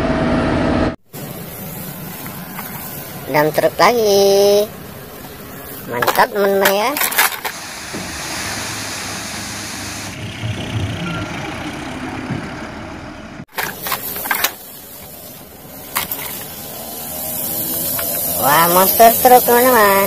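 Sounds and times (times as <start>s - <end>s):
truck engine running: 0.0s - 20.0s.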